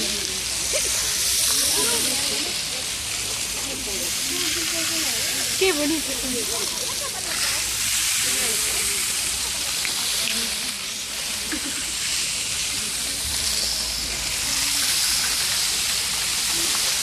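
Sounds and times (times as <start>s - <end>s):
rain sticks rushing hiss: 0.0s - 17.0s.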